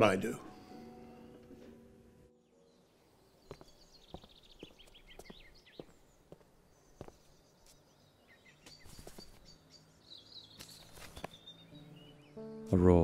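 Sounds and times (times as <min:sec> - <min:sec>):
small birds chirping: 0:02.4 - 0:13.0
footsteps on pavement: 0:03.4 - 0:07.9, 0:08.6 - 0:09.6.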